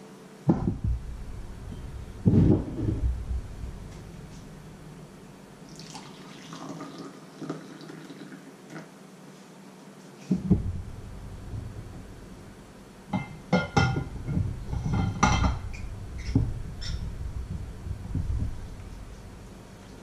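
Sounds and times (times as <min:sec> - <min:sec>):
flask knocking on wooden counter: 0:00.5 - 0:01.0, 0:13.1 - 0:15.6
liquid pouring into mug: 0:05.7 - 0:08.5.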